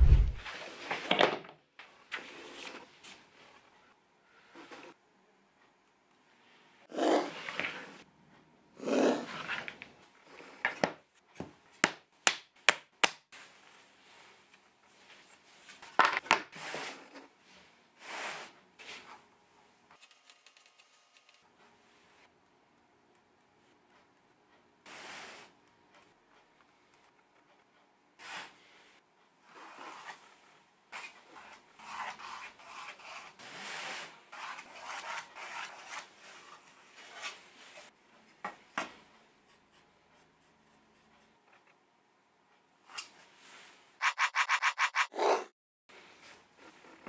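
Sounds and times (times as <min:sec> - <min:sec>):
pencil scratching along ruler: 0:31.4 - 0:36.1, 0:44.0 - 0:45.5
plastic square rubbing on wood: 0:44.0 - 0:45.2.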